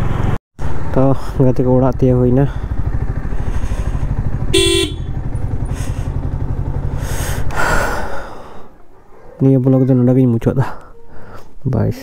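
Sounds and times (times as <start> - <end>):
motorcycle engine running: 0.0 - 8.8
motorcycle horn toot: 4.4 - 5.6.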